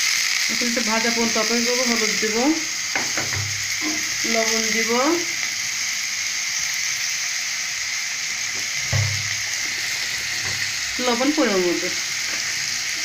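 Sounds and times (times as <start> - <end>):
potato frying in oil: 0.0 - 13.0
knock: 2.9 - 3.5, 8.9 - 9.2.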